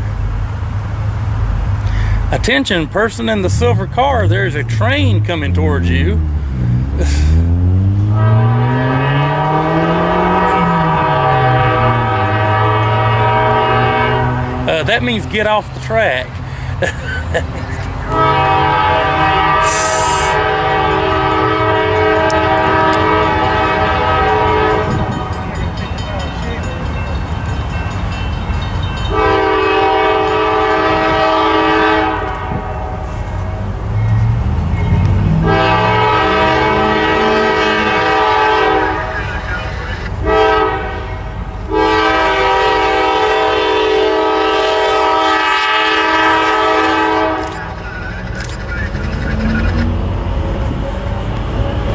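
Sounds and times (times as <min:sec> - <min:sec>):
train rumbling: 0:00.0 - 0:51.9
locomotive air horn blast: 0:03.2 - 0:16.8, 0:17.7 - 0:25.8, 0:29.1 - 0:33.6, 0:35.2 - 0:48.5.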